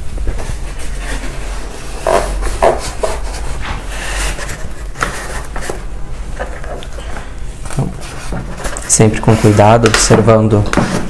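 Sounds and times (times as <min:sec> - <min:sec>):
fabric rustling and rubbing: 0:00.0 - 0:06.8.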